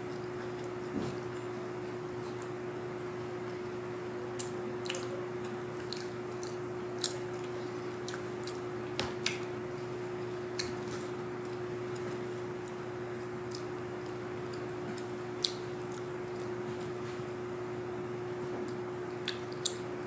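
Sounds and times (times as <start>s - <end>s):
steady low hum: 0.0s - 20.0s
person chewing with lip smacks: 4.3s - 9.5s, 10.5s - 16.6s, 18.6s - 19.8s.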